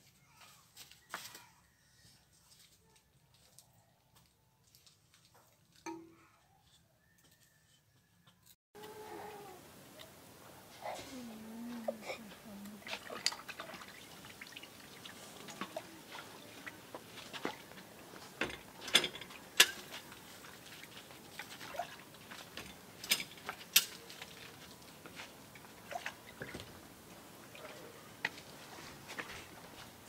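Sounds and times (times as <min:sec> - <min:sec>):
clinks against a steel pot: 0:05.9 - 0:06.2
water splashing: 0:12.6 - 0:17.8, 0:20.0 - 0:22.4, 0:25.5 - 0:26.8.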